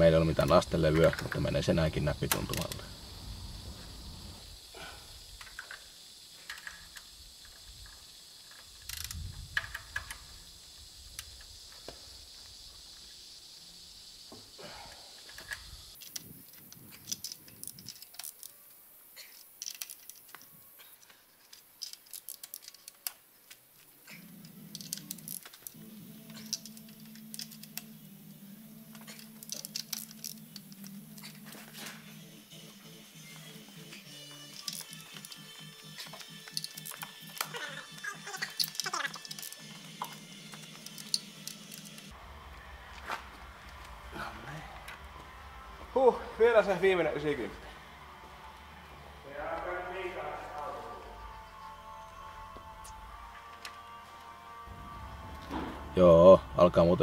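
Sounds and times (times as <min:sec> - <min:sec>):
hand tools clicking and clinking: 0:15.2 - 0:18.6, 0:19.2 - 0:27.9, 0:28.9 - 0:42.1
low steady hum: 0:39.9 - 0:57.0.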